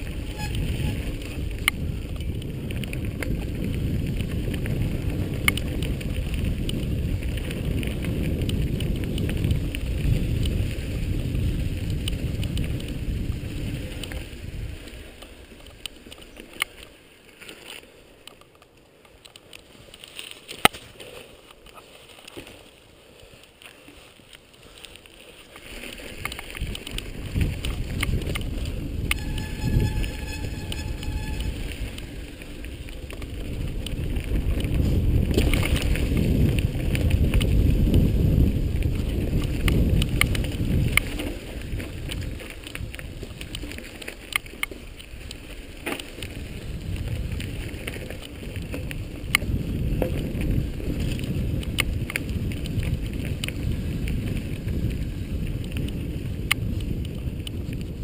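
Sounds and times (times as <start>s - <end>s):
wind buffeting microphone: 0.0s - 15.8s, 25.6s - 58.0s
bike frame rattling and clicking: 0.0s - 22.7s, 23.4s - 58.0s
brief high squeal: 29.2s - 31.7s.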